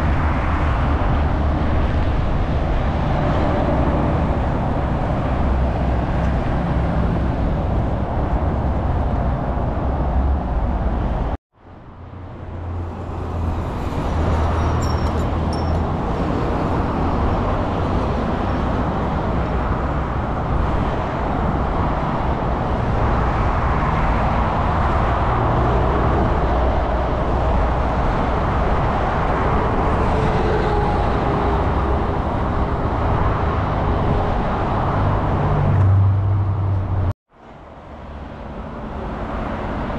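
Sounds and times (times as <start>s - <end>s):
motorway traffic: 0.0s - 39.9s.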